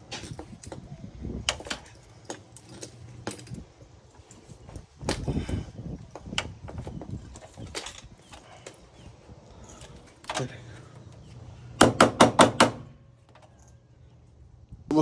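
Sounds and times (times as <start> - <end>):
hand tools clanking on metal: 1.5 - 3.7, 6.4 - 11.2.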